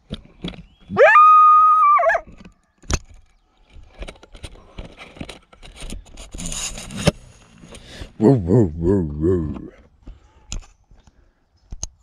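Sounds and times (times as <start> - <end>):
coyote howl: 0.9 - 2.3
faint clicks and rustling: 2.3 - 7.9.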